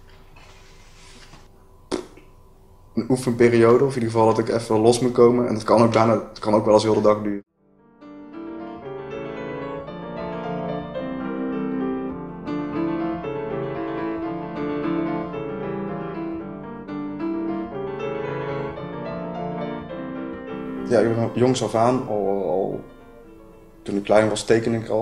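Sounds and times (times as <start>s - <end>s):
slow piano music: 6.7s - 25.0s.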